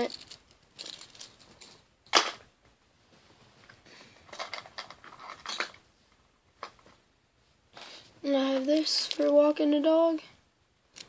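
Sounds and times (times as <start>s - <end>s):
small clicks and rustles: 0.0s - 2.2s, 3.5s - 7.0s, 8.5s - 9.4s.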